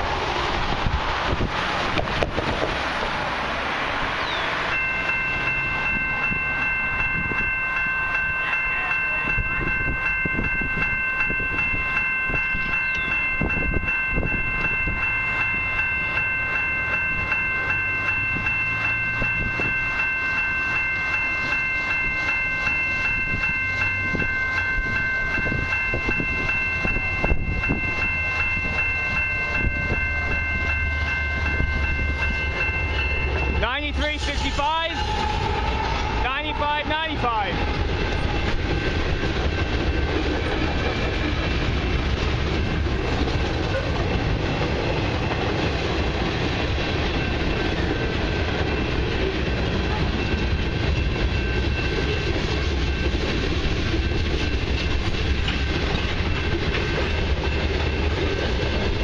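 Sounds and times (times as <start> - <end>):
wind on microphone: 0.0 - 2.9, 23.1 - 30.6
freight train rumble: 0.0 - 59.0
level crossing bell ringing: 4.2 - 35.1, 36.2 - 40.2.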